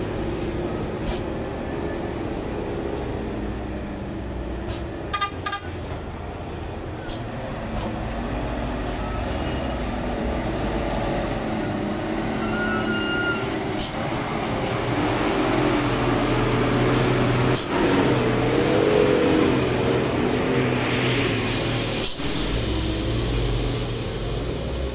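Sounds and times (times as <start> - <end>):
truck diesel engine running: 0.0 - 24.9.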